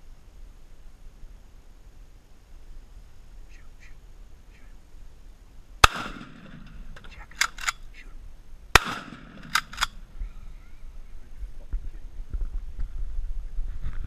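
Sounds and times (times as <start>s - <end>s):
gunshots: 5.8s - 7.8s, 8.7s - 10.1s.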